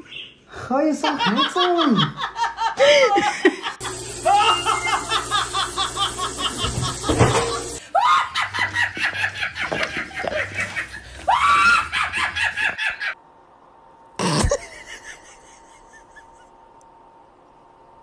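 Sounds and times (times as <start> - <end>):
woman laughing hard: 1.2 - 13.2, 14.4 - 16.5.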